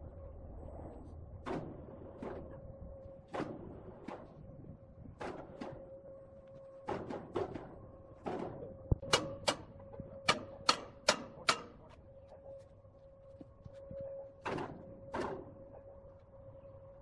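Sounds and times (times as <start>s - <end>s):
steady hum: 0.0s - 17.0s
sharp metallic knocks: 6.9s - 11.9s.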